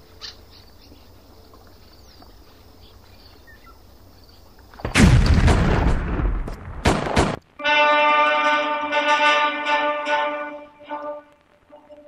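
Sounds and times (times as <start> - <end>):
faint background hiss: 0.0 - 5.4, 7.3 - 12.0
blast of battle noise: 4.8 - 7.4.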